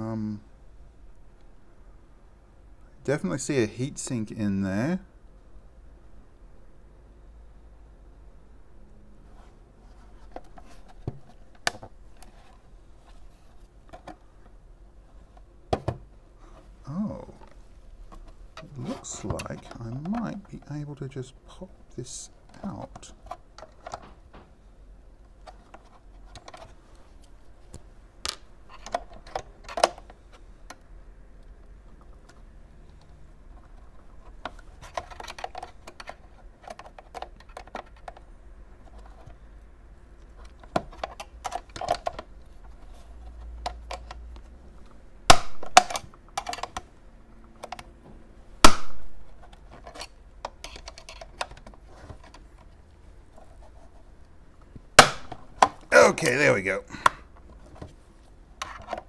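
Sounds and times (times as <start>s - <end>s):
sharp plastic snaps: 45.2s - 46.9s, 48.6s - 52.4s, 54.8s - 55.9s.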